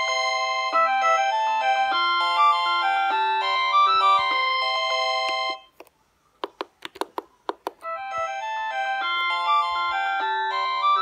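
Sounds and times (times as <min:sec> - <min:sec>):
electronic ringtone melody: 0:00.0 - 0:05.7, 0:07.8 - 0:11.0
polyphonic ringtone melody: 0:00.0 - 0:05.7, 0:07.8 - 0:11.0.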